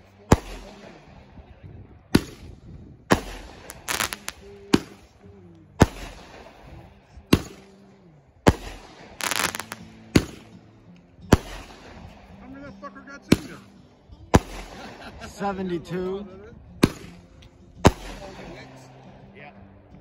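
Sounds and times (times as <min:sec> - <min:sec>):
firework bangs: 0:00.3 - 0:00.9, 0:02.1 - 0:02.5, 0:03.1 - 0:05.2, 0:05.8 - 0:07.7, 0:08.4 - 0:10.6, 0:11.3 - 0:12.1, 0:13.3 - 0:13.6, 0:14.4 - 0:15.1, 0:17.8 - 0:18.4
firework crackling: 0:03.1 - 0:05.1, 0:05.8 - 0:06.6, 0:08.5 - 0:10.4.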